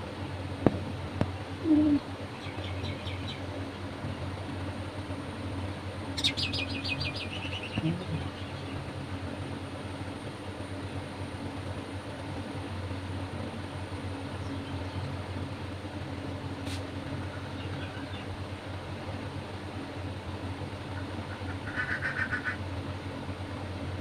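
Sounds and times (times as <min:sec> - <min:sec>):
steady low hum: 0:00.0 - 0:24.0
small bird chirping: 0:01.6 - 0:03.5, 0:06.1 - 0:08.8, 0:14.4 - 0:15.0, 0:17.3 - 0:18.3.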